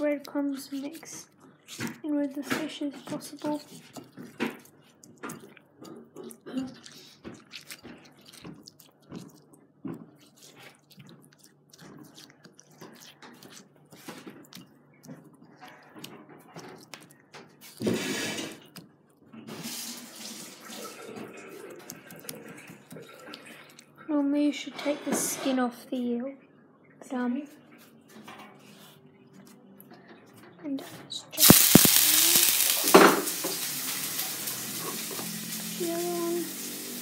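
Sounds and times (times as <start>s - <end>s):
hand squishing fish in breadcrumbs: 0.0s - 17.9s, 21.6s - 24.0s, 31.4s - 34.3s
scrapes in a ceramic bowl: 17.8s - 18.6s.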